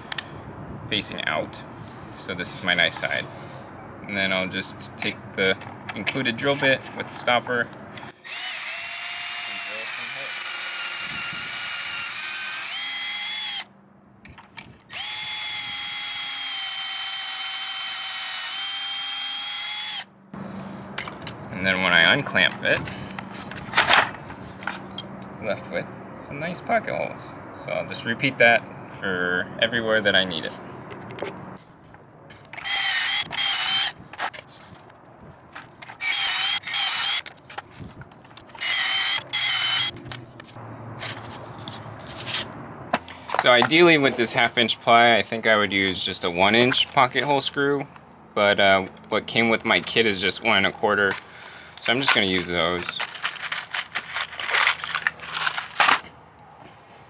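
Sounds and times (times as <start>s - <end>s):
cordless drill whining: 8.2s - 13.7s, 14.9s - 20.1s, 32.6s - 34.0s, 36.0s - 37.3s, 38.6s - 39.9s.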